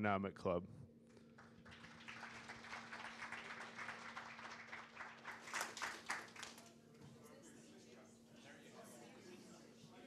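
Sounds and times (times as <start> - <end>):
faint audience applause: 1.3 - 6.8.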